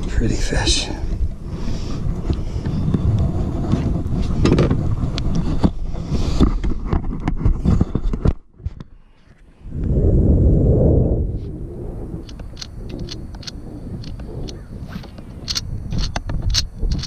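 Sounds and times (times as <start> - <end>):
wind buffeting microphone: 0.0 - 8.9, 9.5 - 17.0
knocks and rustles: 3.7 - 8.9.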